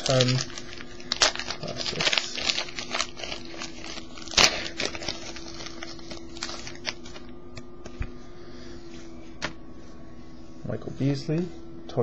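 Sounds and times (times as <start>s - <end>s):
foil wrapper crinkling: 0.0s - 7.3s
cards being handled: 0.0s - 8.1s.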